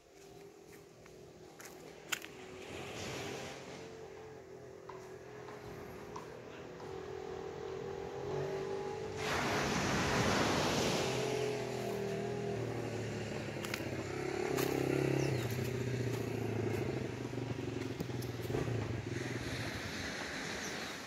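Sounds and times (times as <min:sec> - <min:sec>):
engine humming steadily: 0:00.0 - 0:21.0.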